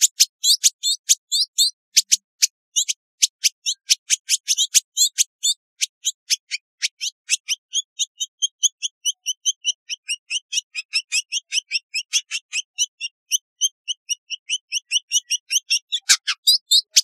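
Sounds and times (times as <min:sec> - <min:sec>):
bird chirping: 0:00.0 - 0:17.0.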